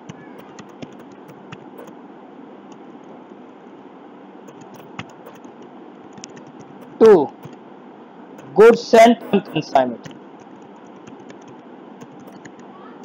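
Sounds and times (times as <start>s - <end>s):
keyboard keystrokes: 0.0s - 1.9s, 4.5s - 5.5s, 9.2s - 12.6s.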